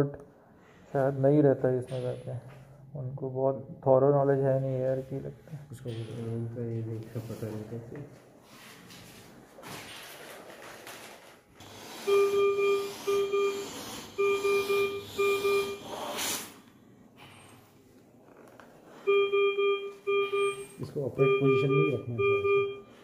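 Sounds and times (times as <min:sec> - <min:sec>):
ventilator alarm beeps: 0:12.0 - 0:16.0, 0:19.0 - 0:23.0
air hiss: 0:15.8 - 0:16.7.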